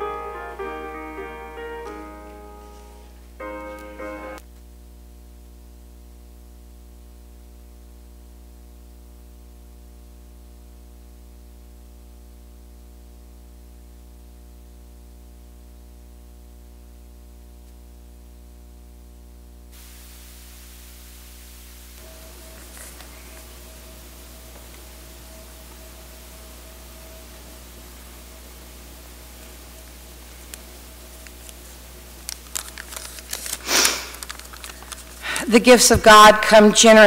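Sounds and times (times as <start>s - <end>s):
electrical mains hum: 0.0s - 37.0s
hiss: 19.8s - 32.2s, 33.4s - 35.5s.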